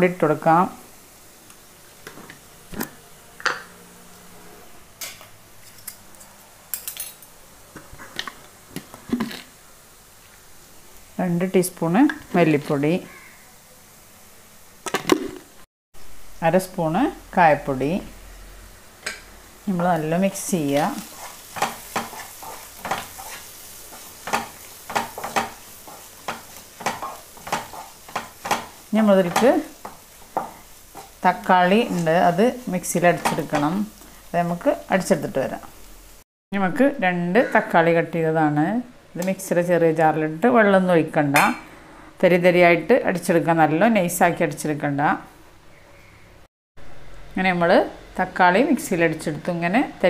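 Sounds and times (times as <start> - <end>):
faint frying sizzle: 0.0 - 36.3, 46.8 - 50.0
spatula scraping pan: 20.7 - 32.4.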